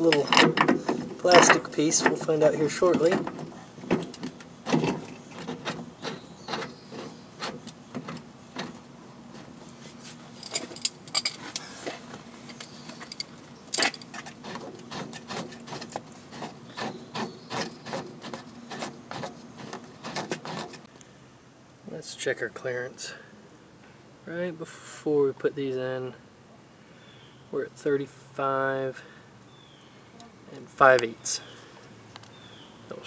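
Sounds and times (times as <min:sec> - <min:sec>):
metal clicks and knocks: 0:00.0 - 0:08.8.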